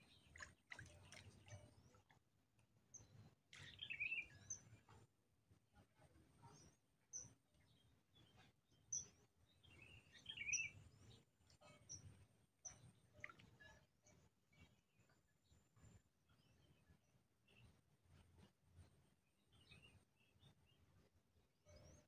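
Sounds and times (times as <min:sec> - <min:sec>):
faint bird chirps: 0:03.0 - 0:05.0, 0:06.4 - 0:14.8.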